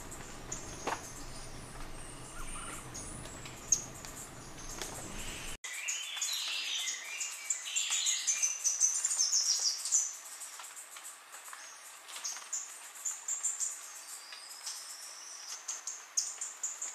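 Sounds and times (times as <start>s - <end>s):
low background rumble: 0.0s - 5.6s
birds chirping: 0.0s - 10.6s.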